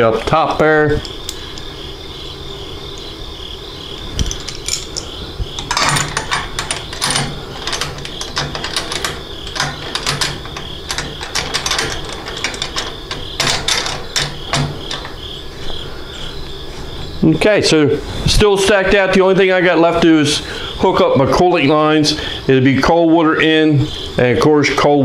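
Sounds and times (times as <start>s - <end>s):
metal fitting clicking and scraping: 1.0s - 1.7s, 4.2s - 15.3s.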